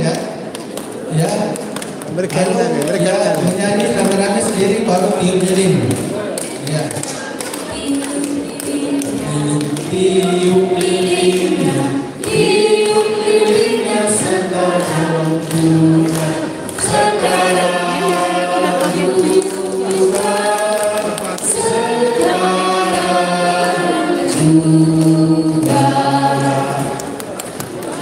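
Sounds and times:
women singing together: 0:07.2 - 0:28.0.

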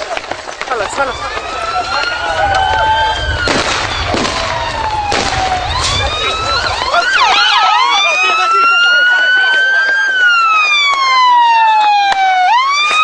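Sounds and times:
sharp cracks: 0:00.0 - 0:08.7, 0:12.0 - 0:13.0
siren wailing and yelping: 0:00.8 - 0:13.0
low rumble: 0:01.0 - 0:07.5.

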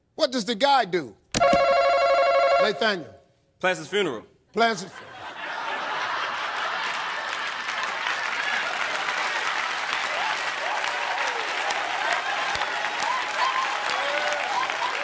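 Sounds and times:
audience applauding: 0:05.7 - 0:15.0.

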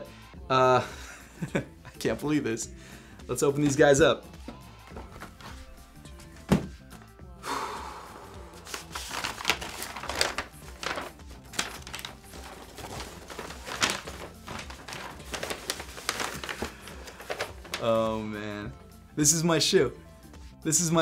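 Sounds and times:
background music: 0:00.0 - 0:21.0
box thump: 0:06.4 - 0:06.8
wrapping paper rustling: 0:08.6 - 0:18.3.

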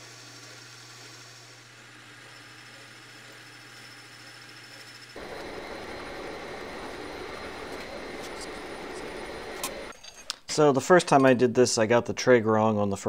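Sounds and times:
metal lathe humming: 0:00.0 - 0:09.9
milling machine spindle running: 0:00.0 - 0:09.9.

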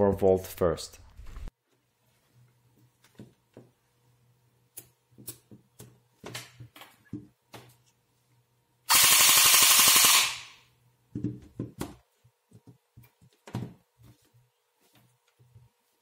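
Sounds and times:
airsoft gearbox firing burst: 0:08.9 - 0:10.6.

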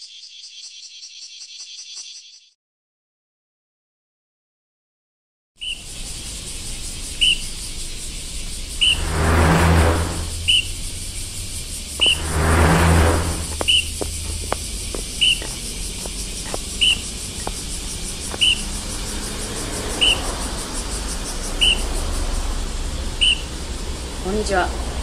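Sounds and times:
high bird-like chirp: 0:07.1 - 0:12.5, 0:13.2 - 0:14.4, 0:15.2 - 0:15.6, 0:16.8 - 0:17.6, 0:18.2 - 0:18.8, 0:20.0 - 0:20.2, 0:21.6 - 0:21.9
whooshing swell: 0:08.7 - 0:14.4.

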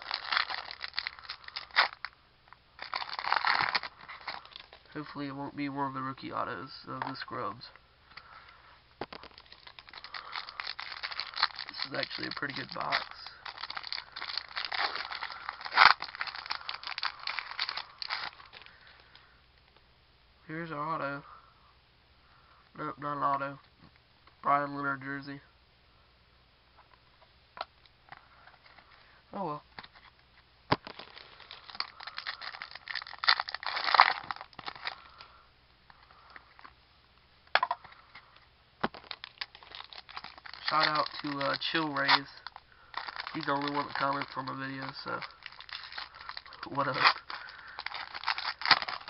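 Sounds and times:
plastic wrapper crinkling: 0:00.0 - 0:05.1, 0:09.0 - 0:19.2, 0:29.8 - 0:36.8, 0:37.5 - 0:49.0.

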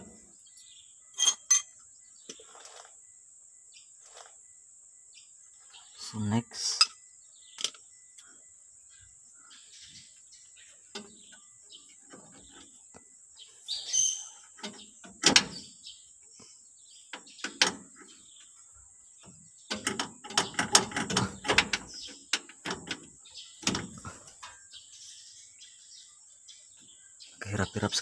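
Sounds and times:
metal clicks and rattles: 0:19.7 - 0:24.6.

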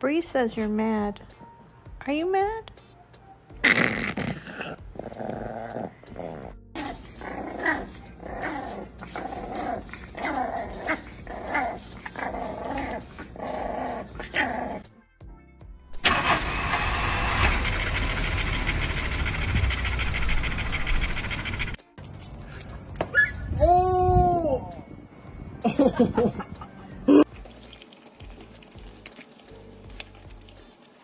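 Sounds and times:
puppy growling and yapping: 0:03.5 - 0:14.9, 0:16.8 - 0:21.8
small dog growling: 0:03.6 - 0:14.9
dog loud rasping panting: 0:17.5 - 0:21.8.

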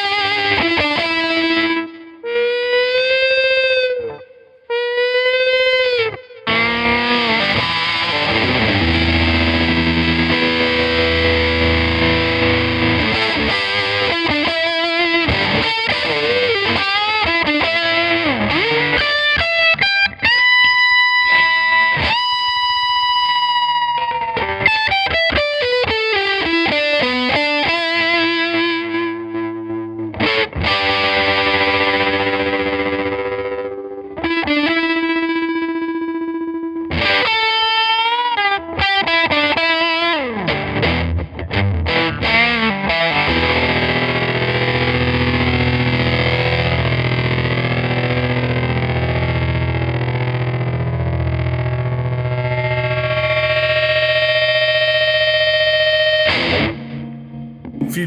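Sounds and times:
overdriven electric guitars with tremolo: 0:00.0 - 0:58.0.

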